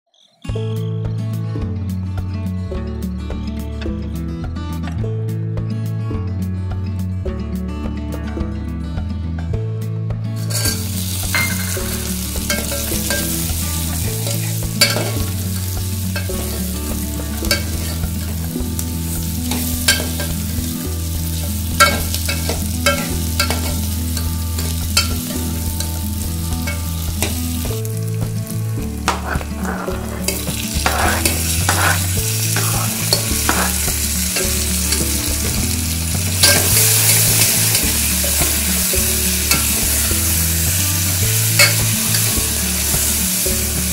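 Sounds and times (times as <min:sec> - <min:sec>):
vegetables sizzling in oil: 0:10.4 - 0:43.9
ladle scraping a metal pot: 0:14.0 - 0:18.4, 0:29.0 - 0:34.6.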